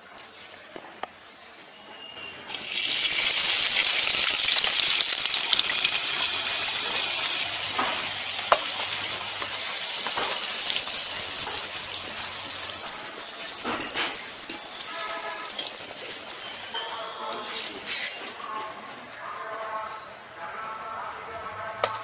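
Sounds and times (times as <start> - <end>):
batter sizzling in hot oil: 2.5 - 16.8.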